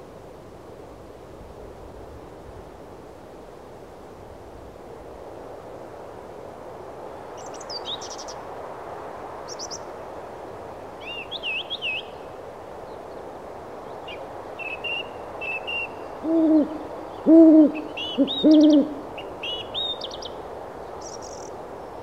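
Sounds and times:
small birds chirping: 21.0 - 21.5.

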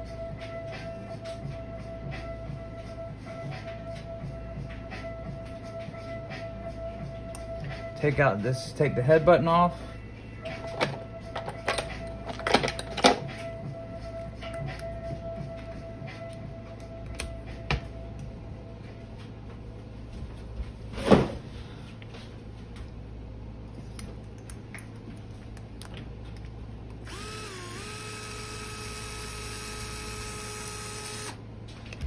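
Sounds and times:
electric screwdriver running: 27.0 - 31.4.

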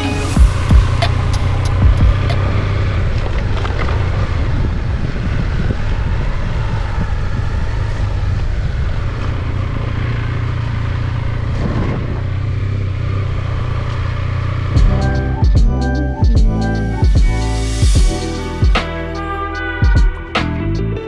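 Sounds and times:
rushing wind noise: 0.0 - 12.6
motorcycle engine drone: 0.0 - 21.0.

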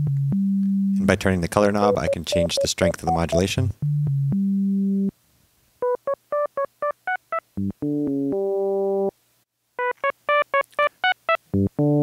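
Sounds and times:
synthesizer notes: 1.8 - 3.6.

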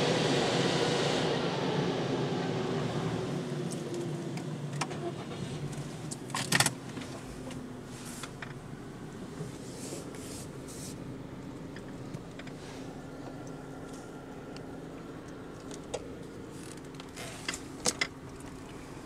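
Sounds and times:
car wash low hum: 0.0 - 19.0.

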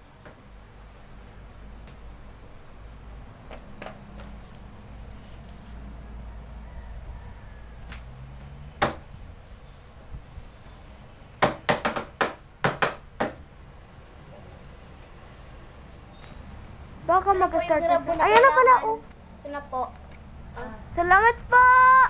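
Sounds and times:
sharp knocks on hard surface: 8.8 - 9.0, 11.4 - 13.4.

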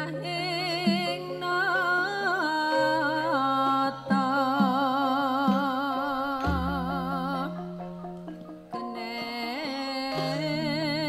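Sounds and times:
gamelan music: 0.0 - 11.0
woman singing long wavering note: 0.0 - 11.0.

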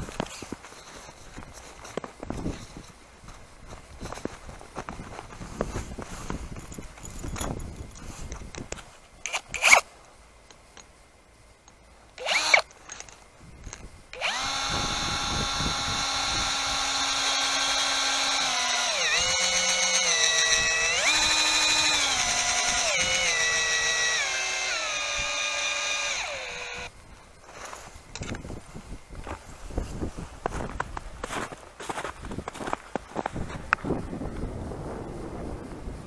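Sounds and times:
cordless drill whining: 9.3 - 9.8, 12.2 - 12.6, 14.2 - 26.9.

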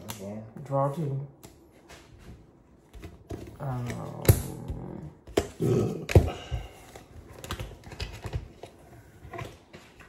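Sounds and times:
cards clicking on a countertop: 2.9 - 10.0.

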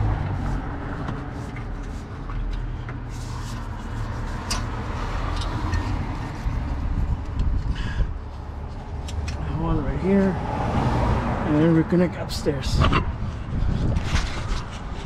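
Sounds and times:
distant road traffic rumble: 0.0 - 15.0.

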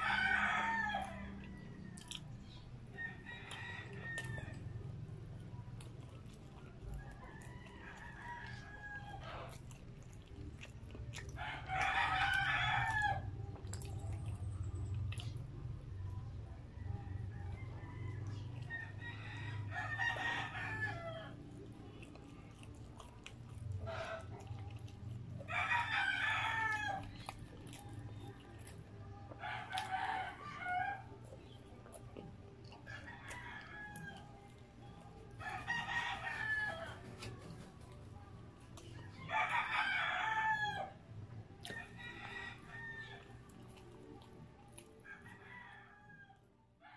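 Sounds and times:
rooster crowing: 0.0 - 2.2, 2.9 - 4.7, 7.0 - 9.6, 11.4 - 13.3, 16.8 - 21.4, 25.5 - 27.1, 35.4 - 37.0, 39.2 - 41.0, 41.6 - 43.4, 45.1 - 46.9
person chewing: 1.9 - 2.6, 3.4 - 4.6, 5.7 - 15.4, 21.5 - 30.4, 31.2 - 35.4, 41.6 - 42.0, 42.6 - 45.1.

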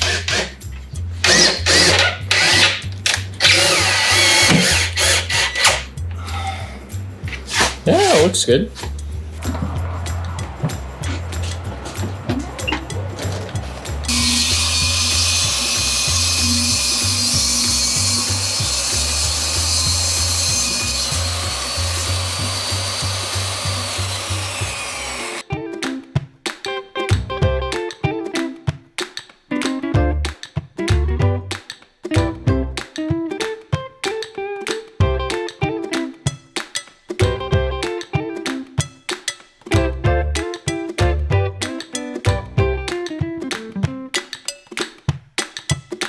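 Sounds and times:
table saw ripping wood: 0.0 - 0.6, 1.2 - 5.9, 7.5 - 7.8, 14.1 - 25.4
background music: 0.0 - 46.0
cordless driver whirring: 1.2 - 5.8, 14.1 - 25.4.

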